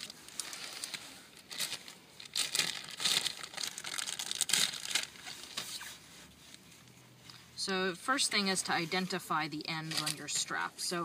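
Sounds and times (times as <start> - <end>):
plastic bag crinkling: 0.0 - 5.9, 9.8 - 10.6.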